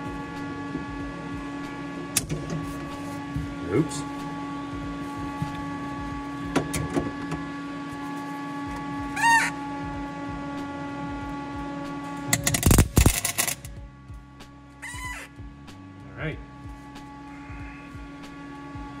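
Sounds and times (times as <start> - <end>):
steady hum: 0.0 - 19.0
welding arc crackle and sputter: 12.3 - 13.7.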